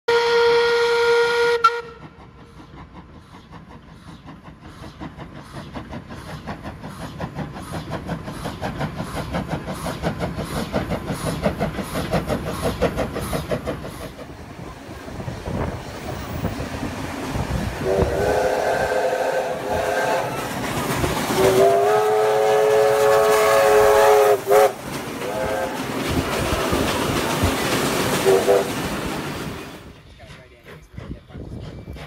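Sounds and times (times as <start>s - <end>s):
steam locomotive whistle blast: 0.1s - 2.6s, 17.8s - 20.6s, 21.3s - 25.9s, 28.2s - 28.8s
steam locomotive chuffing: 0.1s - 32.0s.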